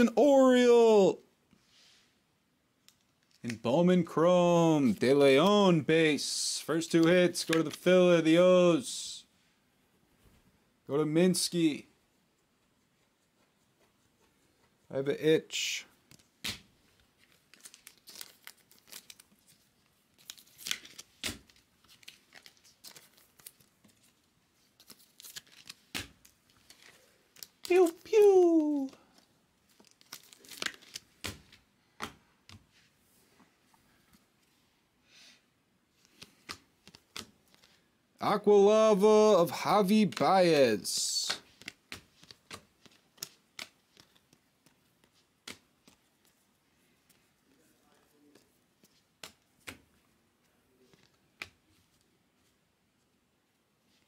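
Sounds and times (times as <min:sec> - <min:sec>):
card wrappers crinkling and tearing: 0:17.2 - 0:31.6.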